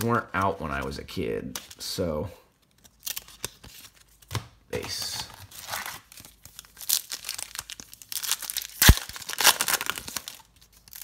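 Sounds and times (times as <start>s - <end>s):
foil wrapper crinkling: 5.2s - 11.0s
foil wrapper snapping: 6.4s - 11.0s.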